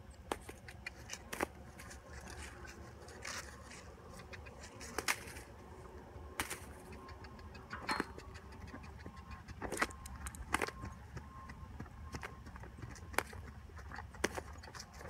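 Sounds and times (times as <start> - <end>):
horse trotting on turf: 6.4 - 15.0
sharp clicks and rattles: 6.8 - 11.0.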